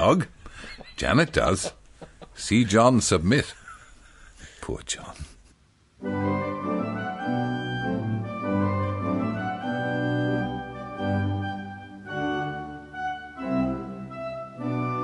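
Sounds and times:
organ playing sustained chords: 0:06.0 - 0:15.0.

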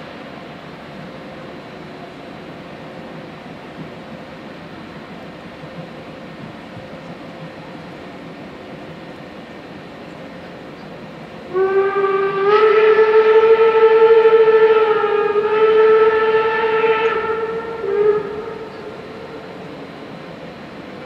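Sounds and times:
steam locomotive whistle: 0:11.5 - 0:20.1.

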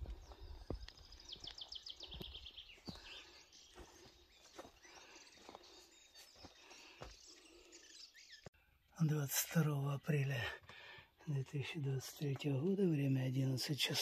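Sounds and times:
faint footsteps: 0:00.0 - 0:07.4.

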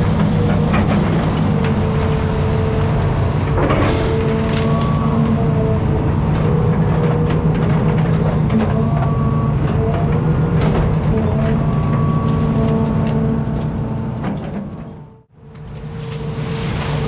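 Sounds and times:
knocks and clanks: 0:00.0 - 0:02.2, 0:03.5 - 0:05.1, 0:06.4 - 0:12.1, 0:13.0 - 0:15.2
excavator diesel engine: 0:00.0 - 0:17.0.

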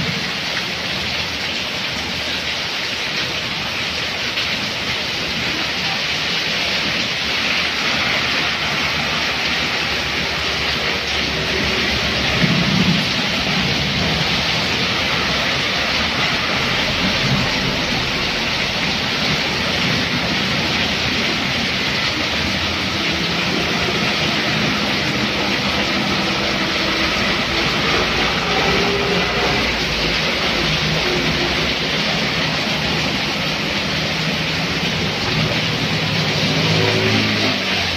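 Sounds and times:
heavy rain hissing: 0:00.0 - 0:37.9
vehicles passing through water: 0:00.0 - 0:37.9
truck passing: 0:07.7 - 0:37.9.

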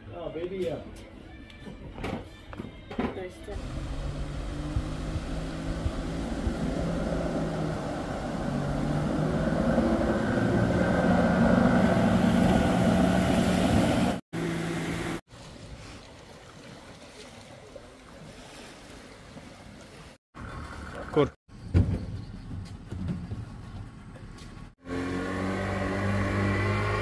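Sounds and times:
engine droning: 0:03.6 - 0:15.2, 0:24.8 - 0:27.0.

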